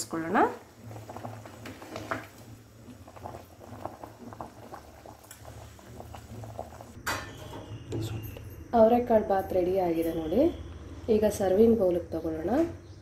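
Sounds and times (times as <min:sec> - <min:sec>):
rice mixture boiling and bubbling: 0:00.0 - 0:08.5.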